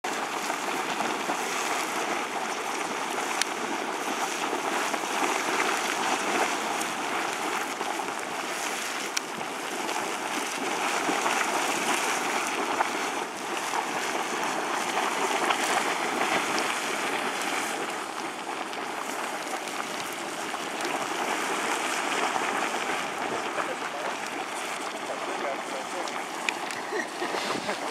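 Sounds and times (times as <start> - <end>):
geyser water splashing and churning: 0.0 - 27.9.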